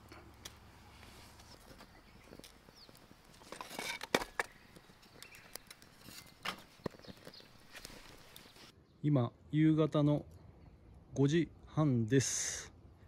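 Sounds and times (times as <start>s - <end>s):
kindling crackling in fire: 0.0s - 8.8s.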